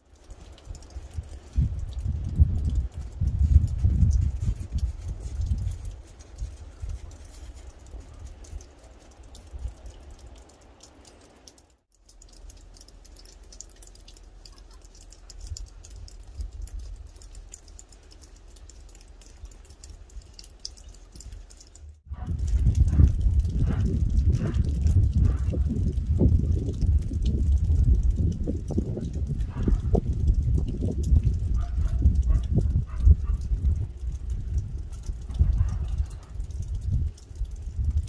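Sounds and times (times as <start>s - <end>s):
low microphone rumble: 22.1s - 38.0s.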